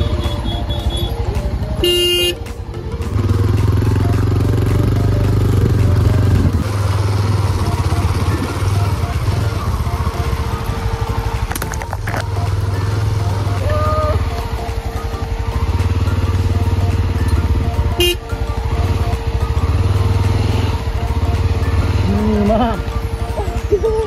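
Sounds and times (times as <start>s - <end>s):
vehicle horn honk: 0.0s - 1.2s, 1.8s - 2.4s, 17.9s - 18.3s
motorbike engine running: 0.0s - 24.0s.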